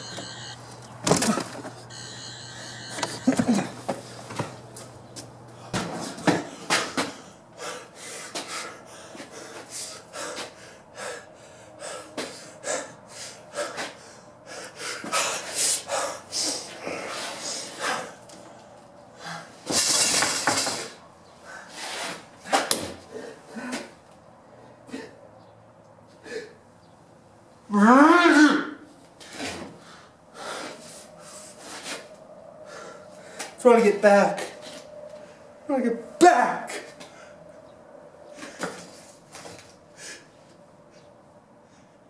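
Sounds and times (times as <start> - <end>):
faint steady hum: 0.0 - 19.8.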